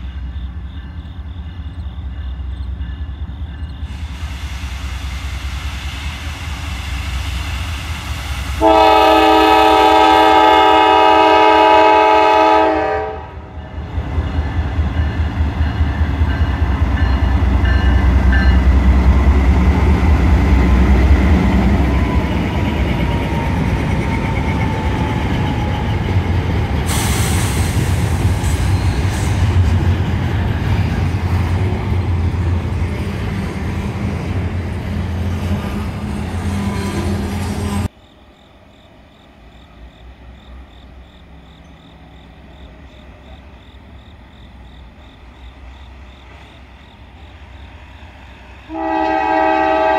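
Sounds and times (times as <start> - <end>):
low rumble of locomotives: 0.0 - 49.9
locomotive horn blast: 8.6 - 13.5, 48.7 - 49.9
train wheels rolling clatter: 13.6 - 37.9.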